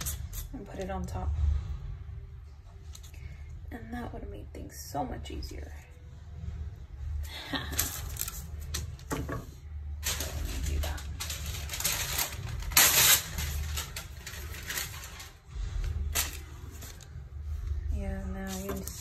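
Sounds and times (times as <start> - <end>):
low steady hum: 0.0 - 19.0
paper crinkling and rustling: 7.5 - 9.3, 10.0 - 17.2, 18.4 - 19.0.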